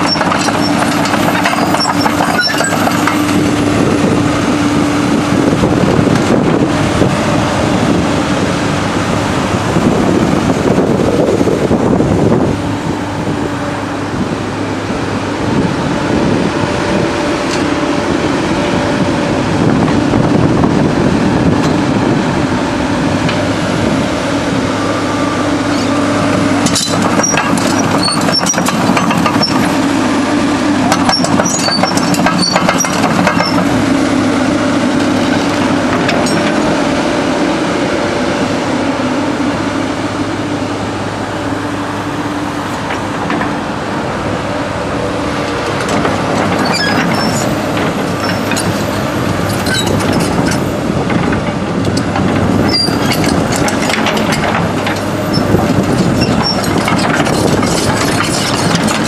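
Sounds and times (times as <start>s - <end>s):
metallic clanks and squeaks: 0.0s - 3.4s, 25.6s - 26.0s, 26.6s - 29.8s, 30.9s - 33.7s, 35.2s - 36.6s, 45.8s - 50.7s, 51.9s - 59.0s
excavator diesel engine running: 0.0s - 59.0s.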